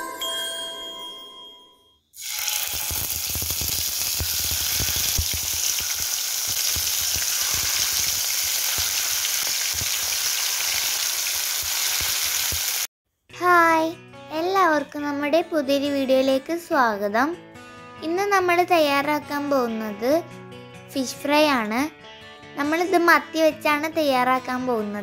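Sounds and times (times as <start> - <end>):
fish sizzling in hot oil: 2.2 - 12.9.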